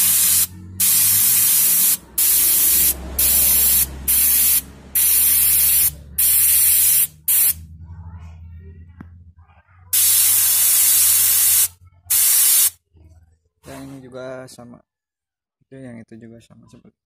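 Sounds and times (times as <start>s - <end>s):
paint spray gun hissing: 0.0s - 7.6s, 10.0s - 12.7s.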